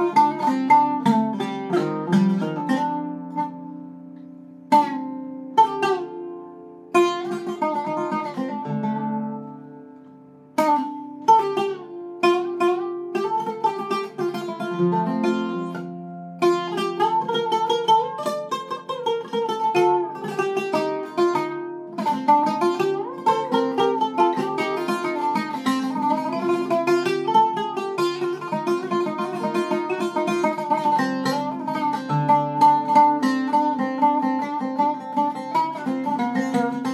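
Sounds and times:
oud playing: 0.0s - 36.9s.

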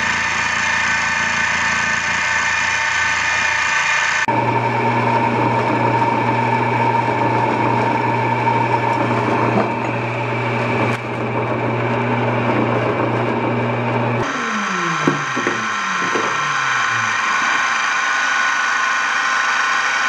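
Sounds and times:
bandsaw cutting metal: 0.0s - 4.3s, 11.9s - 20.0s.

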